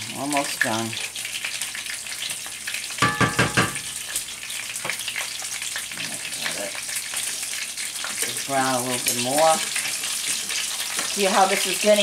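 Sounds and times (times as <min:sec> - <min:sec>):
sausages sizzling in a pan: 0:00.0 - 0:12.0
wooden spoon knocking metal pot: 0:03.0 - 0:03.9.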